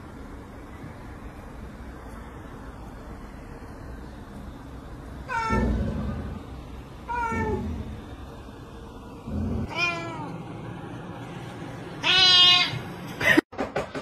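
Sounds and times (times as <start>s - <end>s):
cat meowing: 5.3s - 5.8s, 7.1s - 7.7s, 9.7s - 10.3s, 12.0s - 12.8s.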